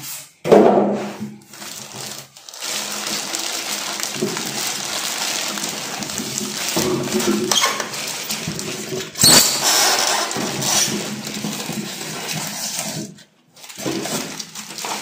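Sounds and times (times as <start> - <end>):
plastic bag crinkling: 1.4 - 15.0
rubbing against cardboard and foam: 4.1 - 15.0.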